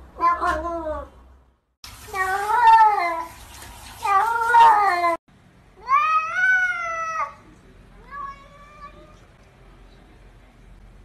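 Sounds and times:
cats meowing: 0:02.1 - 0:03.3, 0:04.0 - 0:05.2.

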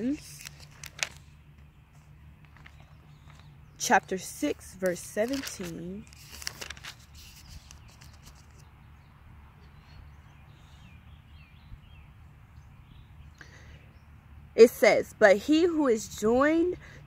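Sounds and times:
thin pages rustling: 0:00.0 - 0:08.7
faint birds chirping: 0:00.0 - 0:17.0.

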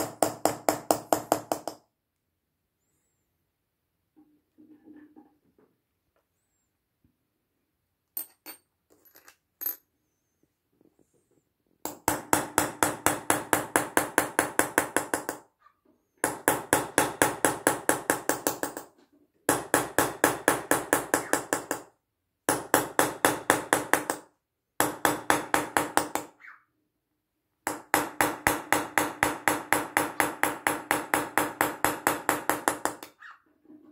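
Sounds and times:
hammer tapping metal chisel: 0:00.0 - 0:01.8, 0:11.8 - 0:15.4.

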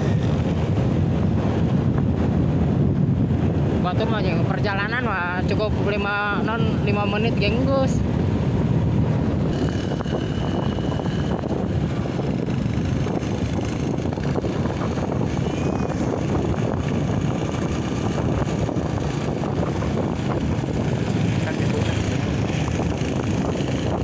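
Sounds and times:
road noise: 0:00.0 - 0:24.0
motorcycle engine running: 0:09.0 - 0:24.0.

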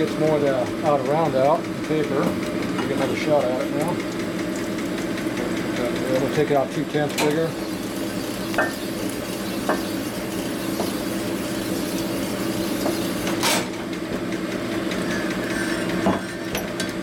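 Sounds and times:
honing machine hum: 0:02.4 - 0:16.0.

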